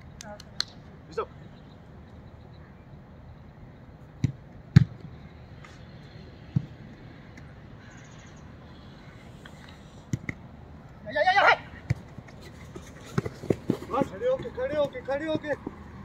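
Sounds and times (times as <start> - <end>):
football kicked thuds: 4.2 - 5.0.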